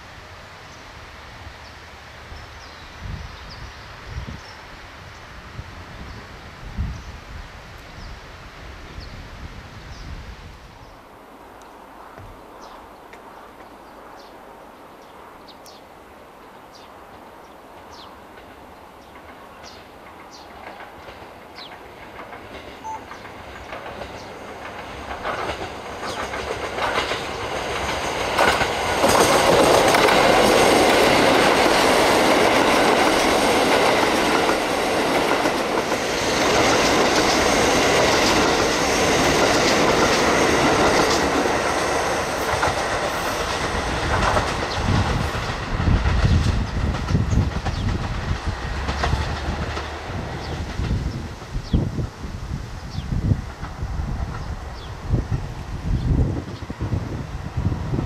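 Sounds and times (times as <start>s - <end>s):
diesel train engines: 10.8s - 58.0s
train wheels clacking: 17.8s - 51.2s.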